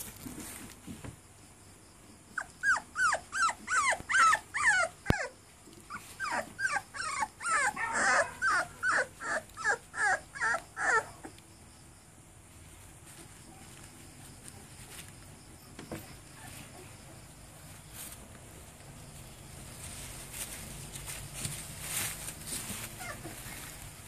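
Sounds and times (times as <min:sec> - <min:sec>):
puppies whining: 0:02.4 - 0:11.4, 0:22.8 - 0:23.7.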